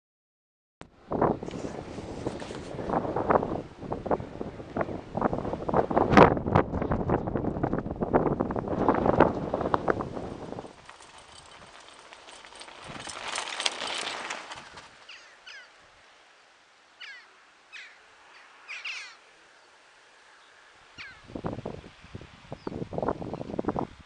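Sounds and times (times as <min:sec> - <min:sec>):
bicycle ticking: 0:08.6 - 0:15.3
bicycle tyres hissing: 0:08.6 - 0:15.7
bird calls falling in pitch: 0:15.0 - 0:15.8, 0:17.0 - 0:18.0.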